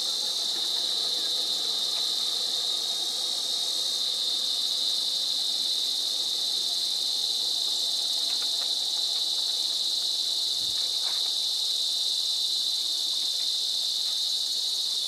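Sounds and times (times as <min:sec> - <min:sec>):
insect chorus drone: 0:00.0 - 0:15.0.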